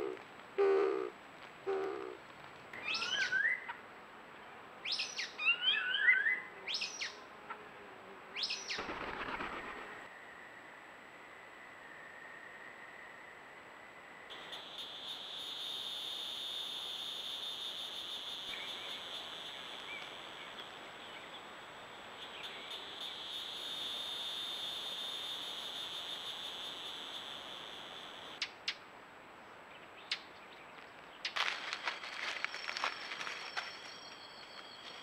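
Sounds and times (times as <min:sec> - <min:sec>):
high-pitched insect buzzing: 0:14.3 - 0:21.4, 0:22.2 - 0:28.4.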